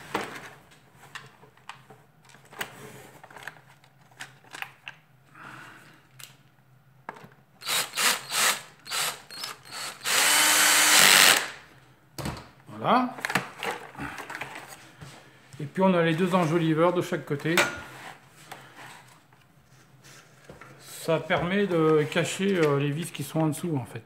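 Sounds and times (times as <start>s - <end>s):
electric screwdriver running: 7.6s - 11.6s.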